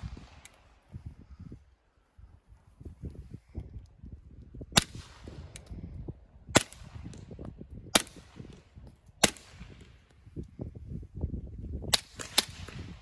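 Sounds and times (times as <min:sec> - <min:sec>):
suppressed pistol shots: 0:06.6 - 0:08.6, 0:09.2 - 0:09.9, 0:11.9 - 0:13.0.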